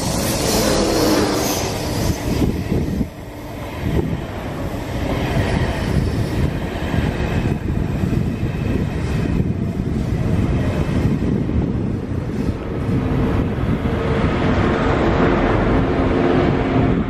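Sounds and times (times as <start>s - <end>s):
train wheels rumbling on track: 0.0s - 17.0s.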